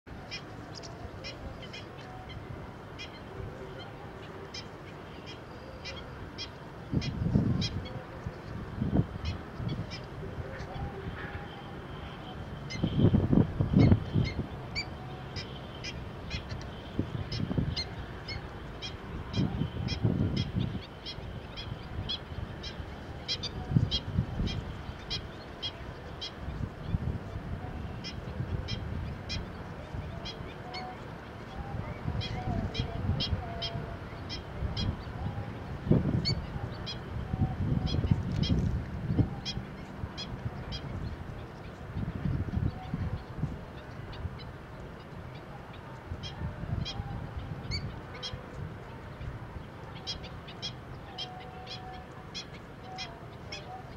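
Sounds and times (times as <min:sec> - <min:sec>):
wind rumble on microphone: 0:06.1 - 0:53.9
birds yelping calls: 0:46.2 - 0:48.6.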